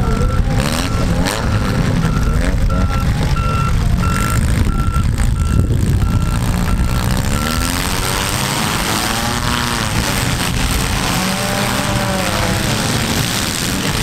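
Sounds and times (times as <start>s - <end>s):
vehicle backup alarm beeping: 0.0s - 9.2s
car engines revving: 0.0s - 14.0s.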